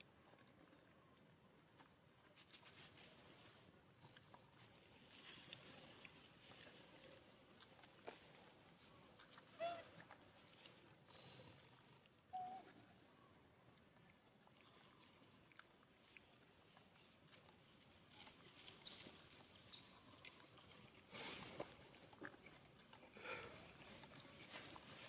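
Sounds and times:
faint rustles: 0:23.4 - 0:25.0.

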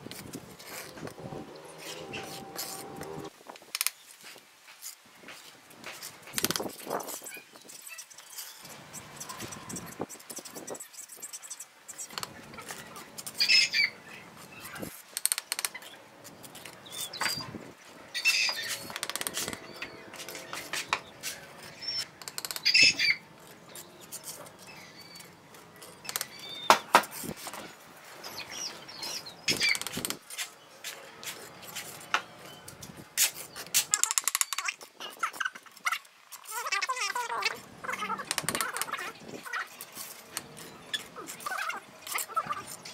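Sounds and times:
trowel scraping mortar: 0:00.2 - 0:03.2.

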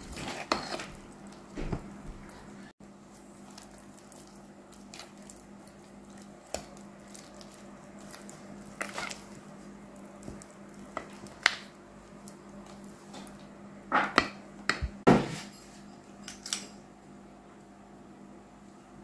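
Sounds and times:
batter squelching: 0:00.0 - 0:13.6
spatula scraping and tapping bowl: 0:00.1 - 0:00.9.

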